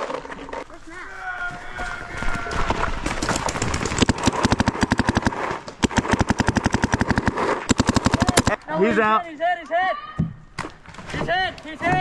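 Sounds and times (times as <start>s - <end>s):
paintball marker rapid firing: 3.1s - 8.6s.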